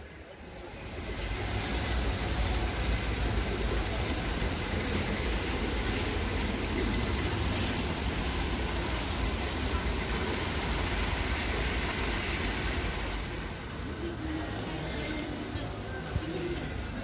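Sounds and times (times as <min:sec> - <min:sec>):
city street traffic rumble: 0:00.0 - 0:17.0.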